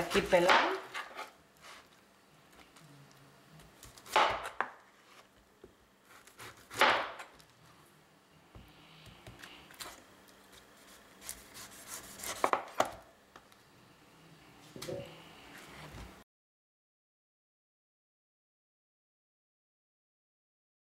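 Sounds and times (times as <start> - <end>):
knife cutting on plastic board: 6.1 - 7.0, 9.3 - 13.0.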